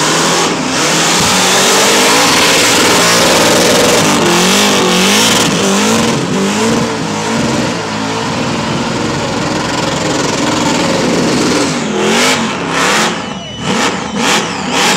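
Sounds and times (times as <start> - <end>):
drag car engine revving: 0.0 - 14.9
spinning tyres roaring: 0.0 - 14.9.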